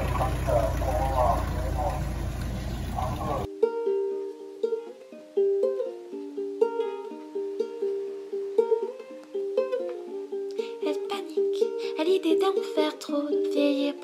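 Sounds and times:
plucked string instrument melody: 3.4s - 14.0s.

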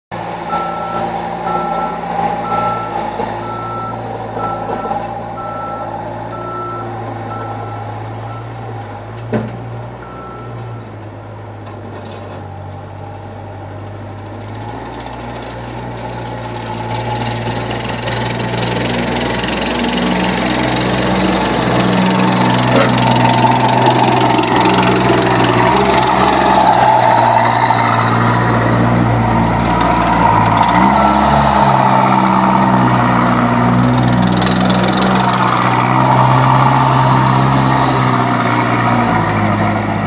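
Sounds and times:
diesel engine running: 0.1s - 40.0s
reversing alarm beeping: 0.5s - 8.8s, 10.0s - 10.9s.

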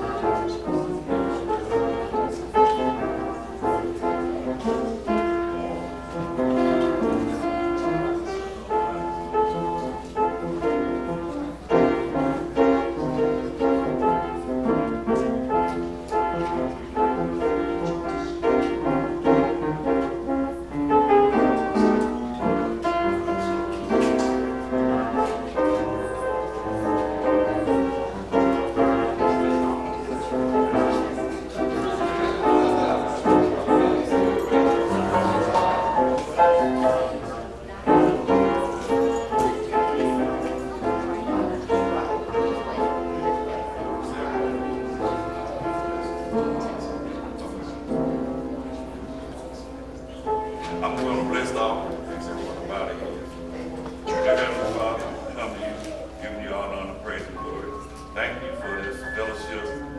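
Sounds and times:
instrumental keyboard music: 0.0s - 59.9s.

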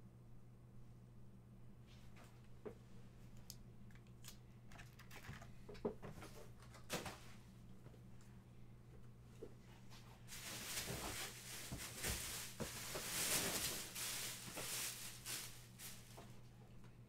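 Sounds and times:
foil wrapper crinkling: 10.3s - 16.2s.

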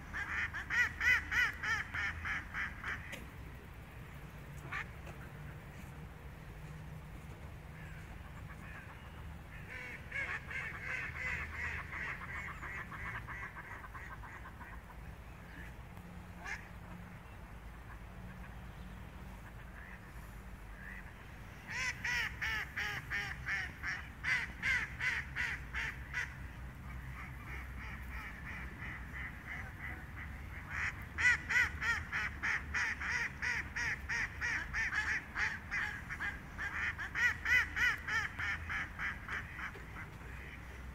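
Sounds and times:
ducks quacking: 7.8s - 15.8s, 19.3s - 40.9s.

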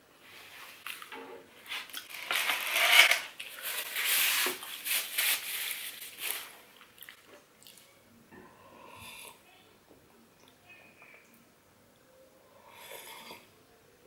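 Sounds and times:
paper napkin crumpling: 1.7s - 6.6s.

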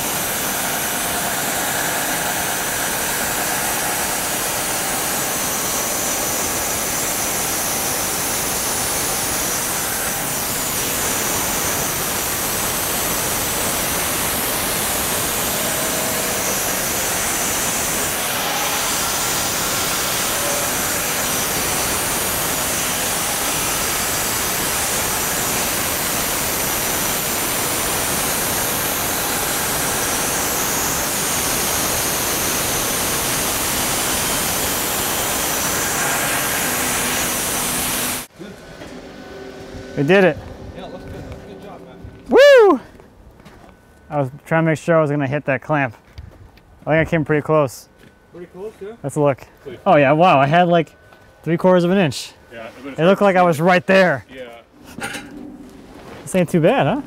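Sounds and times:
band sawmill sawing through log: 0.0s - 41.9s.

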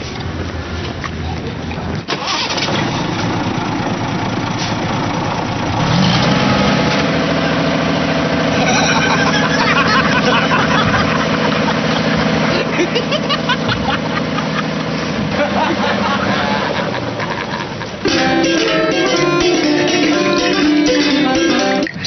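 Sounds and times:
dump truck engine running: 0.0s - 22.0s.

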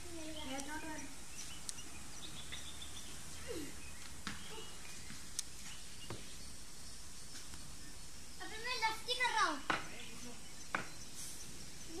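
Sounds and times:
woodland background noise: 0.0s - 12.0s
faint sharp clicks: 5.3s - 5.5s.

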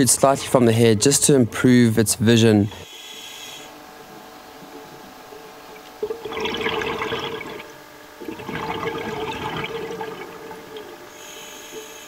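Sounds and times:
underwater bubbles rushing: 5.8s - 11.1s.

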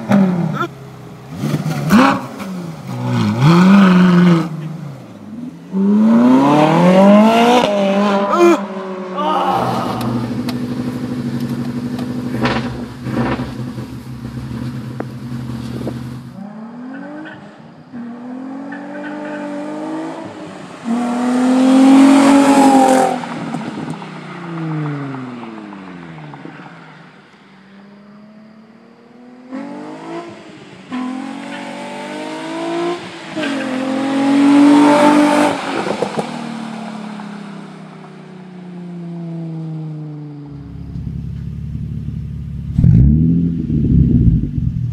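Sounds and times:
sports car accelerating and passing: 0.0s - 9.2s, 9.8s - 44.9s
car engine running from inside cabin: 40.5s - 44.9s.

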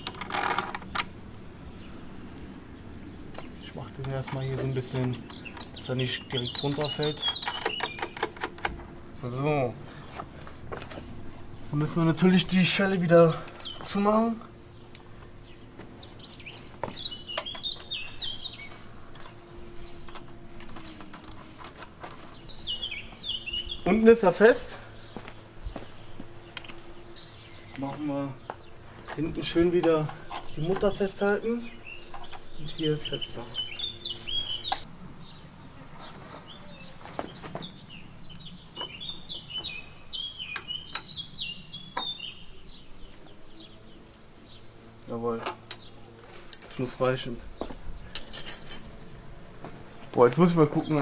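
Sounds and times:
songbird chirping: 0.8s - 51.0s.

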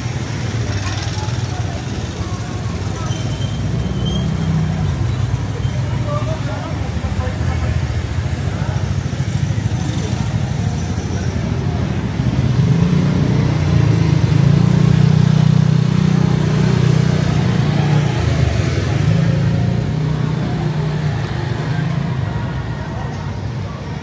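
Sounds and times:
street noise: 0.0s - 24.0s.

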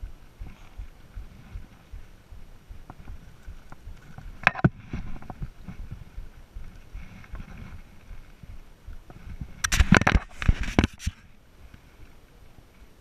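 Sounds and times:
footsteps on rocky ground: 0.0s - 11.0s
knocks and scrapes on rock: 2.9s - 6.1s, 9.1s - 11.2s.

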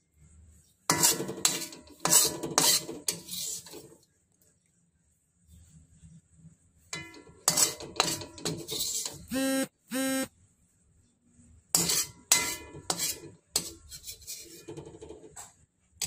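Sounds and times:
metal spatula scraping wok: 0.8s - 4.0s, 6.9s - 9.3s, 11.7s - 15.3s
short steady tones: 9.3s - 10.3s.

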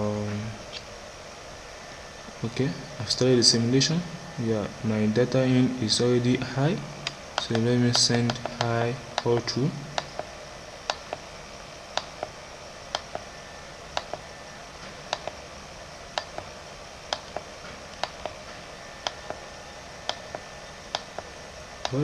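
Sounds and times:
computer mouse button clicking: 14.0s - 14.2s, 15.1s - 15.4s, 17.1s - 18.4s.

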